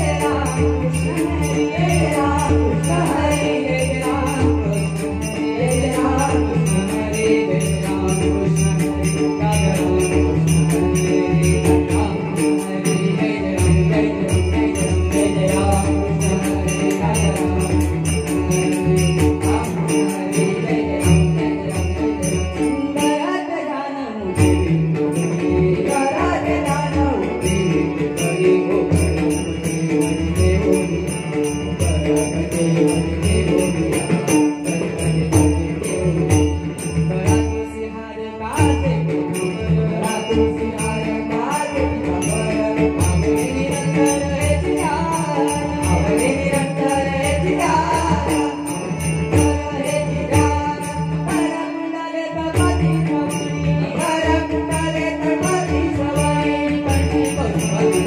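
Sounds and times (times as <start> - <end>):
small hand cymbals: 0.0 - 23.2, 24.4 - 37.7, 38.6 - 51.6, 52.5 - 58.0
harmonium drone: 0.0 - 58.0
men singing together: 49.3 - 58.0.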